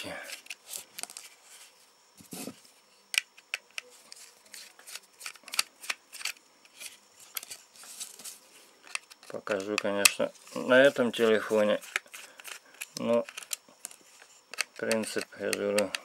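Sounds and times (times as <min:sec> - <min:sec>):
screwdriver clicking on plastic casing: 0:11.9 - 0:16.0.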